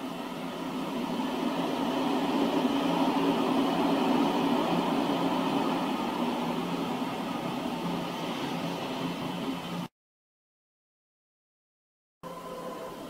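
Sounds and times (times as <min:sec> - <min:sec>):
train wheels rumbling on rails: 0:00.0 - 0:09.9.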